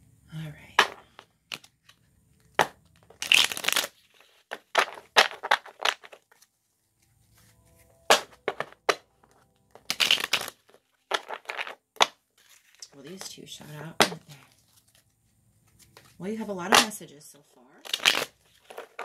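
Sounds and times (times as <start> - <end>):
cards being shuffled: 0.8 - 16.9, 17.8 - 19.0.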